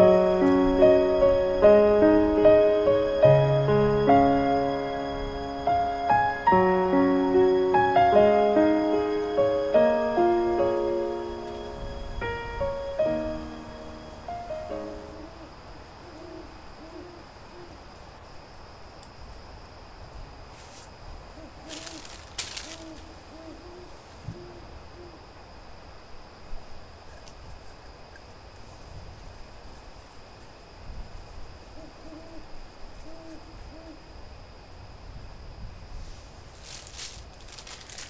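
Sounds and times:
owl hooting: 14.9 - 17.8, 21.3 - 25.2, 31.7 - 34.1
brief rustles: 21.7 - 23.0, 36.5 - 38.0.

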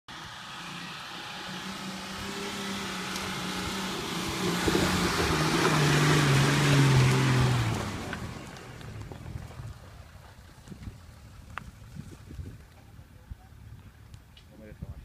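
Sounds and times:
suv engine labouring uphill: 0.1 - 14.4
tyres crunching on loose dirt: 1.4 - 13.0.

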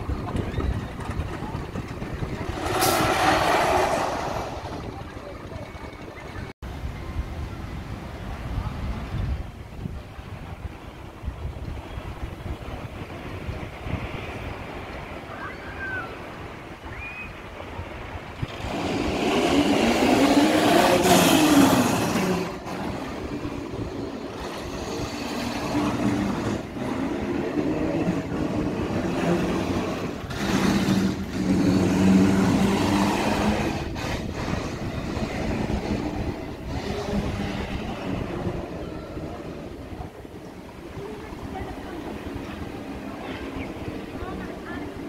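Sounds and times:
roller coaster rumbling on track: 0.0 - 45.0.

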